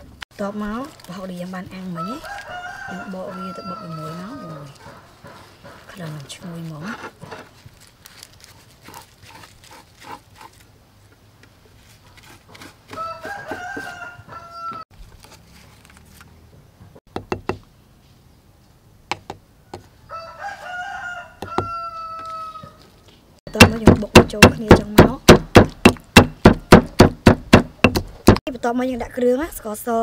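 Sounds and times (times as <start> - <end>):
rooster crowing: 1.9 - 5.0, 12.9 - 14.9, 19.8 - 22.8.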